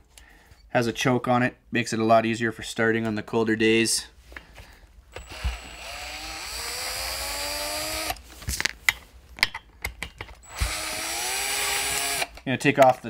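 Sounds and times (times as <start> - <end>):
cordless drill motor whine: 5.1 - 8.2, 10.4 - 12.3
handling clicks and knocks: 8.4 - 10.4.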